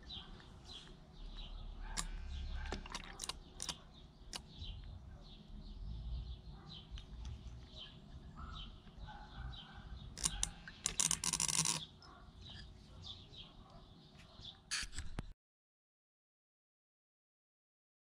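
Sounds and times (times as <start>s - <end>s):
small bird chirping: 0.0s - 14.9s
sharp clicks: 2.0s - 4.5s, 10.2s - 11.9s.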